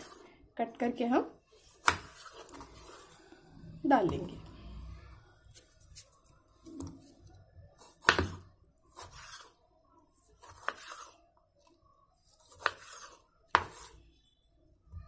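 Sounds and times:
knife rasping through tomato: 8.9 - 9.6, 10.3 - 11.2, 12.3 - 14.0.

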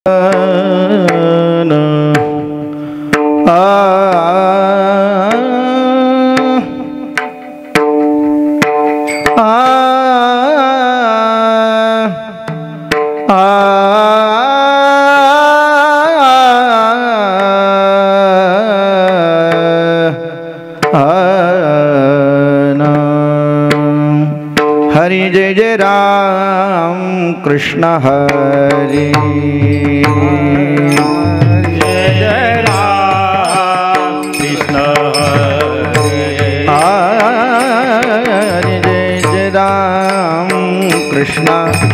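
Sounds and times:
man singing into microphone: 0.0 - 7.3, 9.1 - 41.9
sharp percussion strikes: 0.1 - 15.0, 22.8 - 25.4, 28.0 - 41.9.

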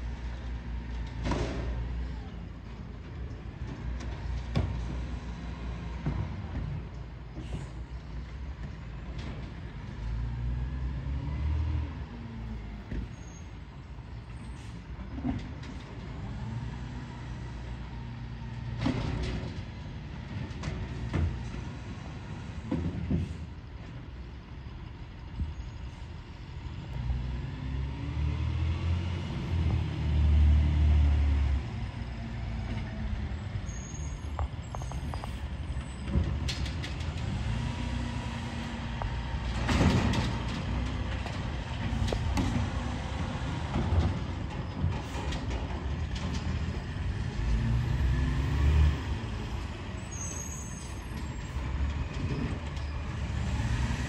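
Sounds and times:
diesel truck engine revving: 9.9 - 12.8, 26.4 - 54.0.

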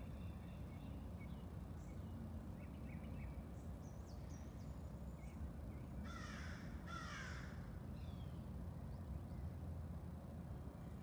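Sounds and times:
crow cawing: 6.1 - 7.5.

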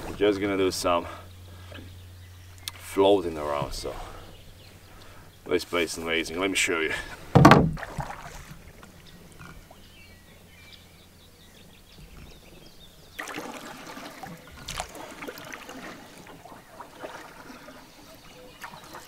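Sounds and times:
faint bird calls: 0.0 - 7.2, 14.2 - 19.0
paddle splashing water: 7.0 - 9.0, 13.2 - 19.0.

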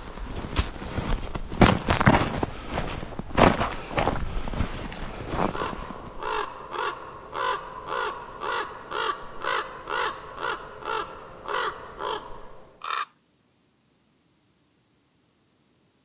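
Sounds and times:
crow cawing: 5.4 - 13.2.

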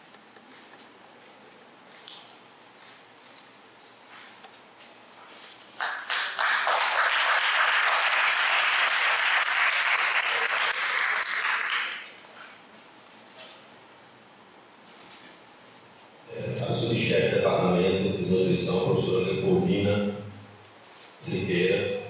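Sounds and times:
audience applauding: 5.8 - 12.2.

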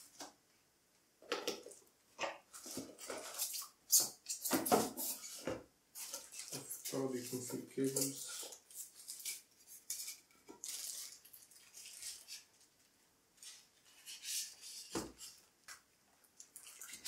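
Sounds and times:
plastic bag crinkling: 6.0 - 12.8.

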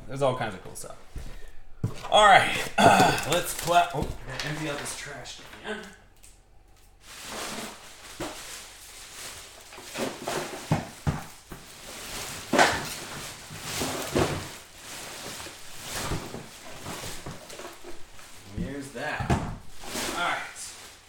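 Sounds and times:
trash rustling: 0.8 - 21.0
knocks and thumps: 1.1 - 4.8, 9.8 - 14.6, 15.2 - 20.3.

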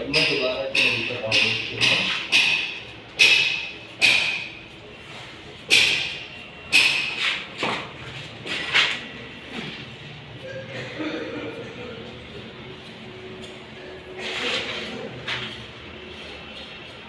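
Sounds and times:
flip-flop footsteps on concrete: 7.1 - 9.1.

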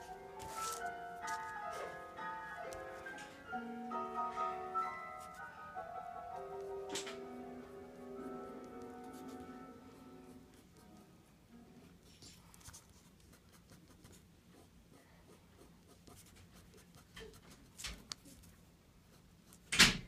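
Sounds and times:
pen scratching on paper: 9.1 - 9.4, 12.6 - 18.5.

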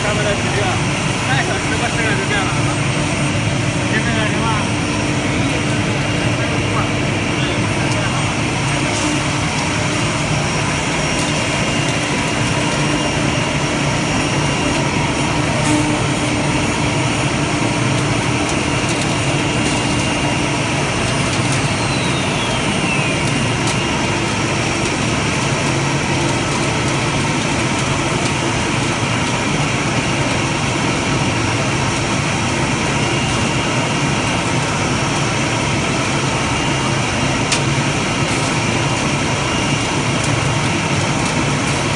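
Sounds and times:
steady hum: 0.0 - 41.9
wood router machine drone: 1.6 - 24.9.

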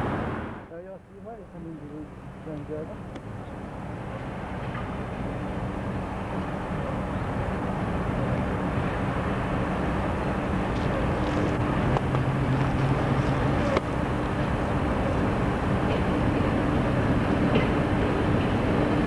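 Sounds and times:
electric train approaching: 3.0 - 19.0
low motor hum: 5.2 - 19.0.

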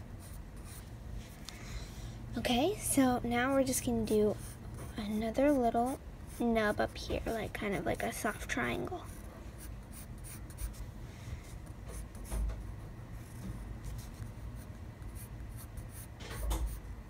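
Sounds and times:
pencil scratching on paper: 0.2 - 0.8, 8.9 - 10.8, 13.2 - 16.8.

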